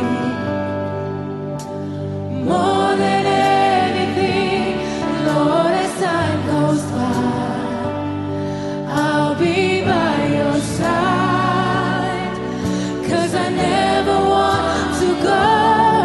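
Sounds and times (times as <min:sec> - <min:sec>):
electric guitar chord: 0:00.0 - 0:16.0
woman singing with backing singers: 0:02.4 - 0:08.0, 0:08.9 - 0:16.0.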